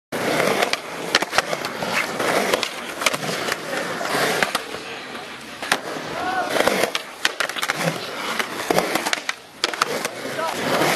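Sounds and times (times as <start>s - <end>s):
skateboard wheels rolling on concrete: 0.1s - 10.9s
skateboard clacking on concrete: 0.2s - 10.9s.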